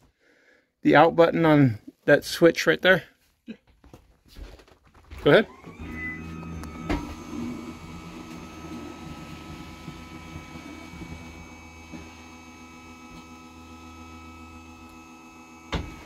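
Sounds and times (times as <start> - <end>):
electric motor humming and whining: 5.3 - 16.0
knock as motor stops: 5.5 - 13.5, 15.6 - 16.0.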